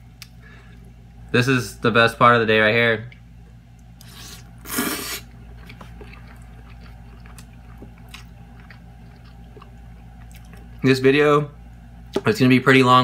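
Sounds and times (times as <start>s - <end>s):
quiet chewing: 3.1s - 10.8s
spaghetti slurping: 4.0s - 10.5s.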